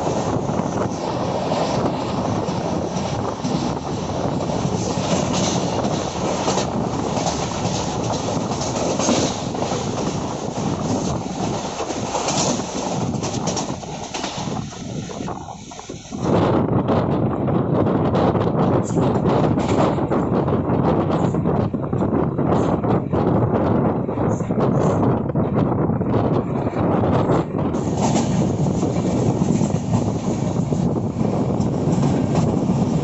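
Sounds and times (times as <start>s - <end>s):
train running rumble: 0.0s - 33.0s.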